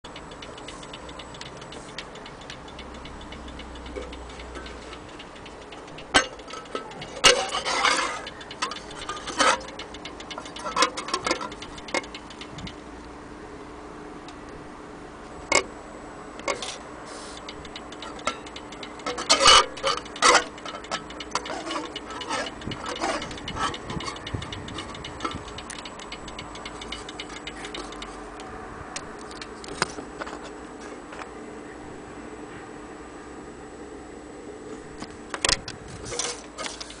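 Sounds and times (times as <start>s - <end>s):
clock ticking: 0.0s - 13.1s, 16.4s - 29.2s.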